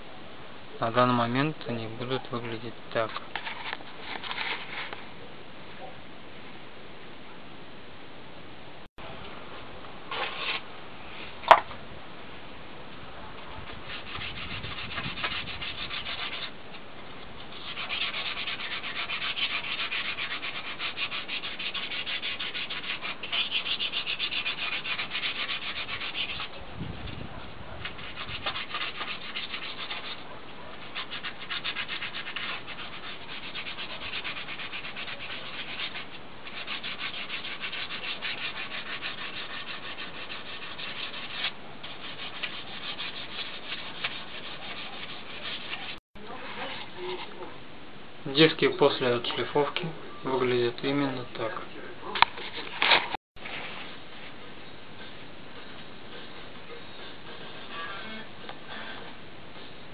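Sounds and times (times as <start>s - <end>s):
sandpaper rasping on metal: 13.7s - 16.5s, 17.5s - 26.6s, 27.8s - 46.0s.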